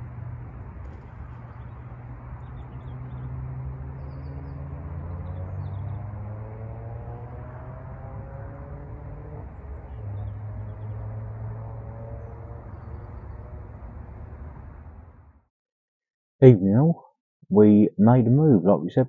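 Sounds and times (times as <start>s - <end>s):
distant engine drone: 0.0s - 15.4s
faint bird chirps: 1.0s - 6.2s, 11.8s - 13.7s.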